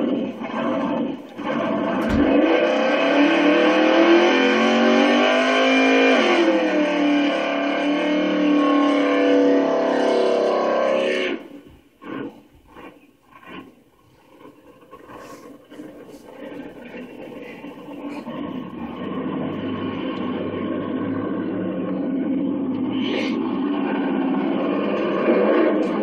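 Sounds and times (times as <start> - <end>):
car engine revving high: 0.0 - 12.4, 15.0 - 26.0
low thump: 2.0 - 2.4.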